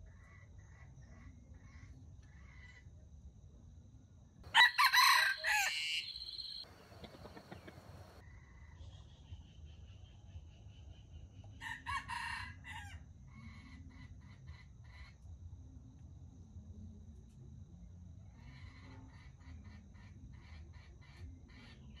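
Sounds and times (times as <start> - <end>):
rooster crowing: 4.5 - 8.2.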